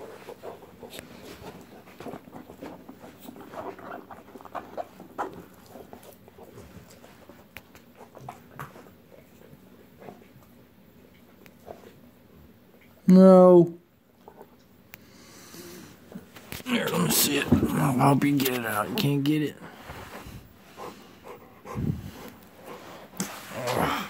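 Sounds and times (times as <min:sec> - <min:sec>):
dog chewing a ball: 0:00.0 - 0:12.1.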